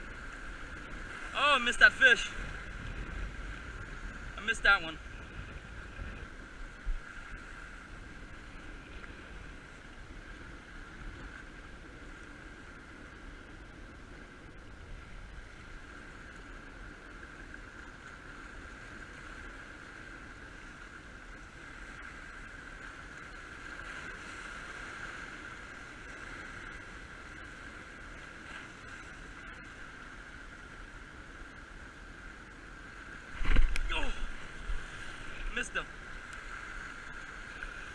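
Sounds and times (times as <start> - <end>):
waves washing over rocks: 0.0 - 9.0, 33.2 - 37.9
wind noise: 33.2 - 37.9.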